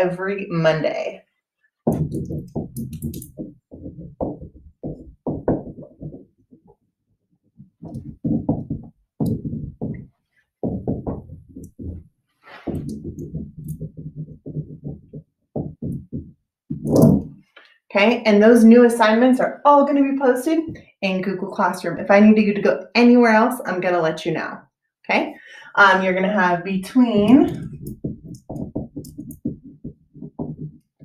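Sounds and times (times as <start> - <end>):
marker scratching on whiteboard: 1.9 - 6.2, 7.8 - 10.1, 10.7 - 17.3, 27.1 - 31.0.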